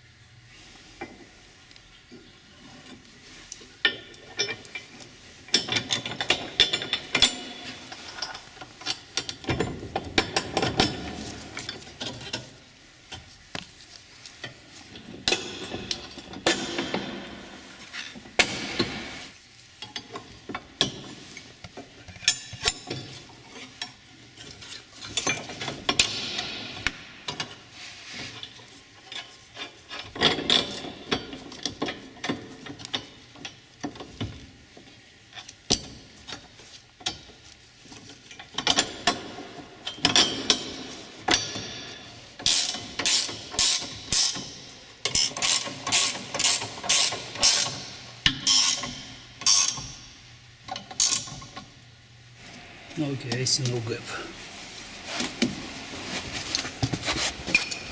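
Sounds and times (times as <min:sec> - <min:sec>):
ratchet wrench clicking: 0:42.5 - 0:44.4, 0:45.1 - 0:50.0.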